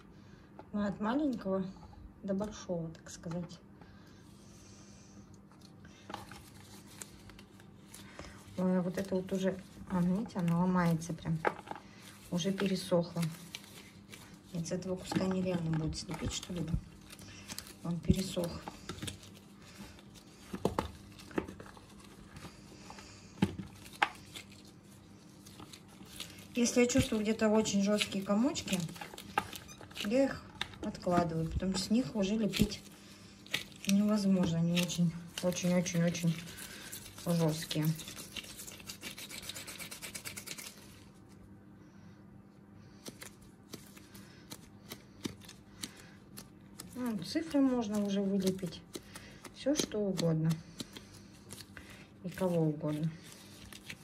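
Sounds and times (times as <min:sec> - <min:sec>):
clay paste rustling: 0:05.6 - 0:41.4, 0:42.8 - 0:54.0.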